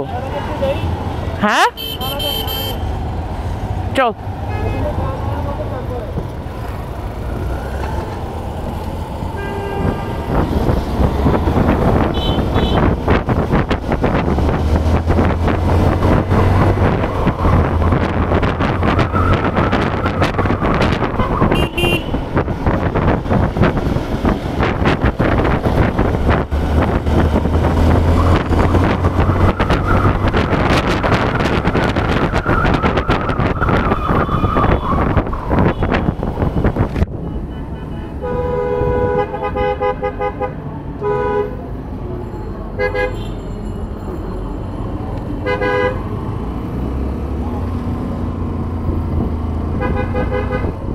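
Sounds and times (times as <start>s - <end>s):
vehicle horn toots: 1.6s - 2.9s, 9.4s - 10.2s, 12.1s - 12.9s, 21.2s - 22.2s, 37.5s - 41.6s, 42.8s - 43.4s, 45.4s - 46.0s, 49.8s - 50.8s
wind noise on microphone: 7.7s - 37.4s, 45.2s - 50.9s.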